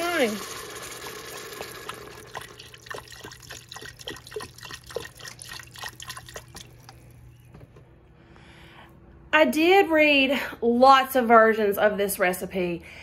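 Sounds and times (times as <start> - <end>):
liquid pouring and splashing: 0.0 - 7.2.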